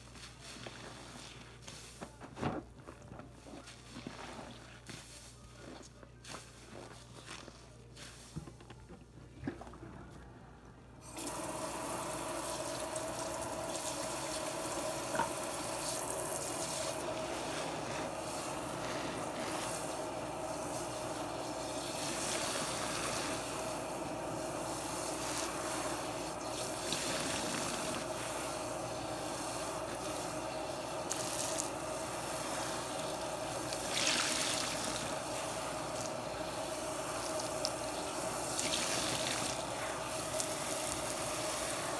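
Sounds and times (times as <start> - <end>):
water spraying into sink: 11.0 - 41.9.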